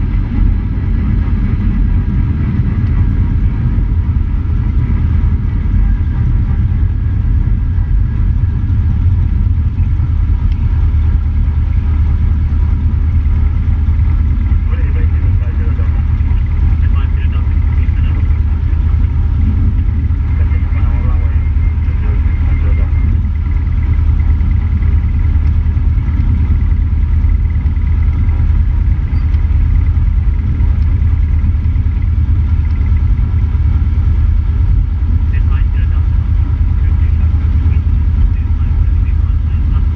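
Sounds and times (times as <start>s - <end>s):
airplane piston engine rumbling: 0.0s - 39.9s.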